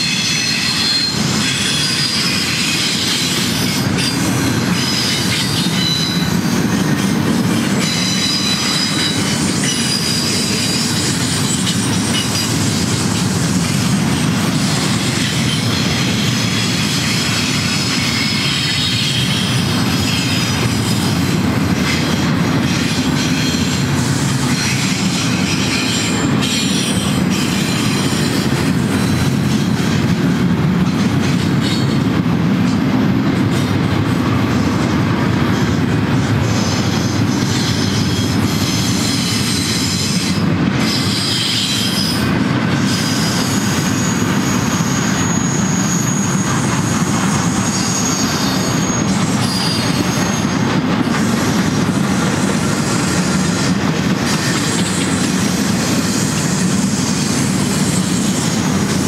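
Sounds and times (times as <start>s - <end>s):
high-pitched wheel squeal: 0.0s - 6.6s, 7.6s - 12.9s, 14.7s - 21.1s, 36.5s - 50.6s, 52.4s - 58.8s
train wheels rumbling on rail: 0.0s - 59.0s.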